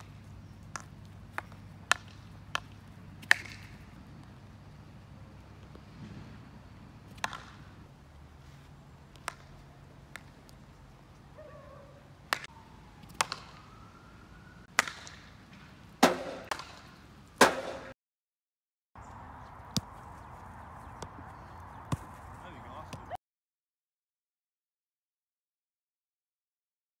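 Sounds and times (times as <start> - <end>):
hockey stick striking ball: 0.7 - 3.9, 7.1 - 7.7, 9.2 - 9.5, 13.1 - 13.6, 14.7 - 17.9.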